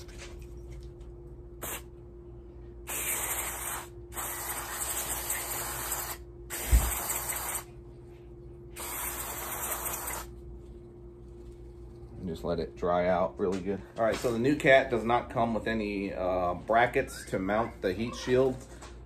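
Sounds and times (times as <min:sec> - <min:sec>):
aerosol can spraying: 0:01.6 - 0:01.9, 0:02.9 - 0:07.7, 0:08.8 - 0:10.3.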